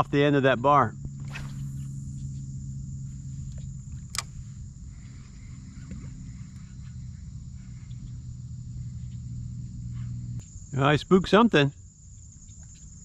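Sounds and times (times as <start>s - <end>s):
small motor humming: 0.0s - 10.8s
thin high whine: 0.0s - 11.7s
sharp click: 3.5s - 4.4s.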